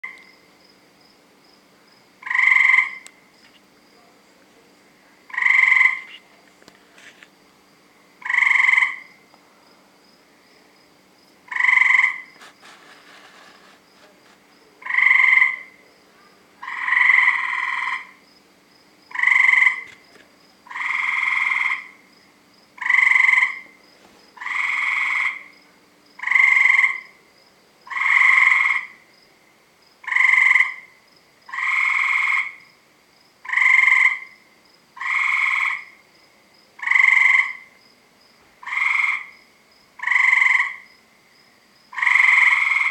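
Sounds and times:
tree frog calling: 0:00.0 - 0:00.5, 0:02.2 - 0:03.7, 0:05.2 - 0:06.4, 0:08.2 - 0:09.3, 0:11.4 - 0:13.8, 0:14.7 - 0:18.3, 0:19.0 - 0:23.8, 0:24.4 - 0:29.4, 0:30.0 - 0:32.8, 0:33.4 - 0:36.2, 0:36.8 - 0:37.9, 0:38.6 - 0:42.9.

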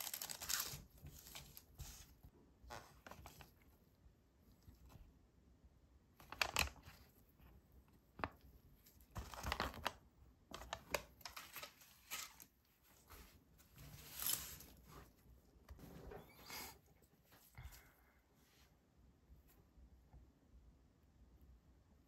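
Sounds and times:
paper and packaging crinkling: 0:00.0 - 0:02.2, 0:08.2 - 0:14.9.

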